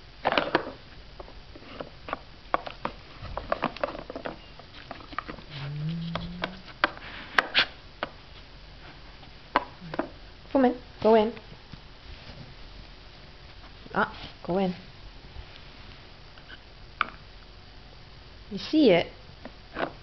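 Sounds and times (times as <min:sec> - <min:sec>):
low voice hum: 0:05.4 - 0:06.7.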